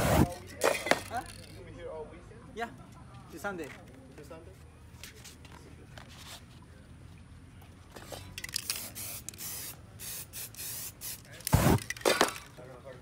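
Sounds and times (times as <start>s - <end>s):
spray paint can hissing: 8.4s - 12.1s.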